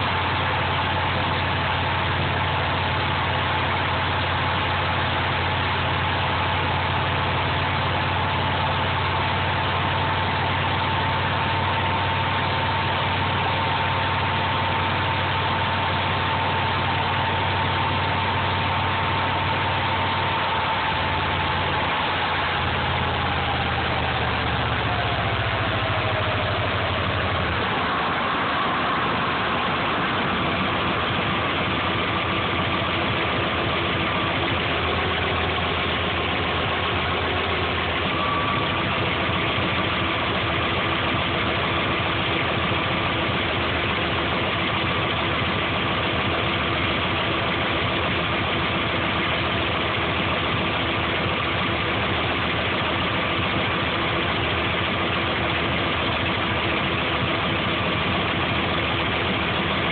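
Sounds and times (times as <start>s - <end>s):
car engine running: 0.0s - 59.9s
thin whine: 9.1s - 41.5s.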